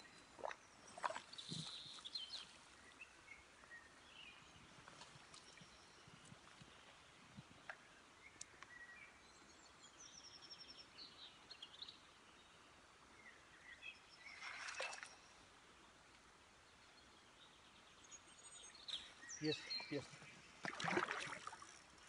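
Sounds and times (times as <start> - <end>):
songbird chirps: 0.0 - 22.0.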